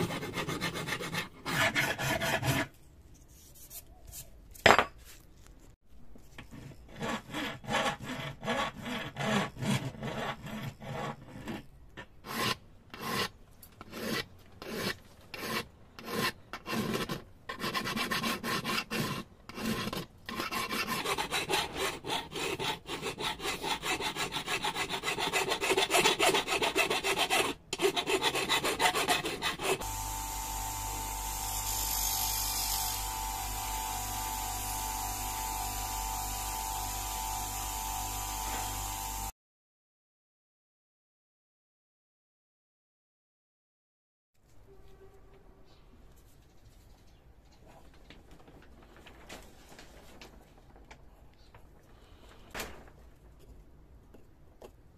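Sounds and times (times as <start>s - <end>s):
hand file rasping on metal: 0.0s - 2.7s, 6.5s - 29.8s
electric motor polishing wheel hum: 29.8s - 32.3s, 32.9s - 39.3s.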